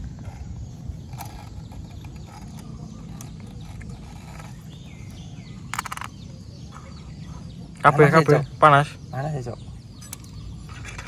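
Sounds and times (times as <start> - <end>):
belt rubbing and clicking on pulley: 0.0 - 6.1
rattle of ticks: 0.0 - 6.4.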